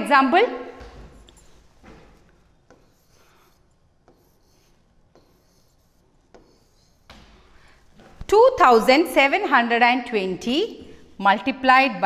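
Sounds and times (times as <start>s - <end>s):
stylus scratching on glass screen: 2.6s - 7.1s.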